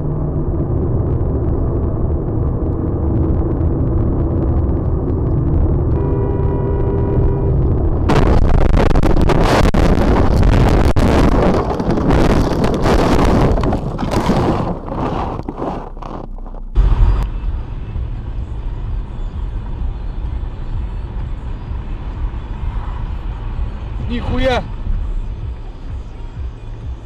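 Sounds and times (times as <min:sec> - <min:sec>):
vehicle low rumble: 0:00.0 - 0:27.0
wind on microphone rushing: 0:06.6 - 0:17.2.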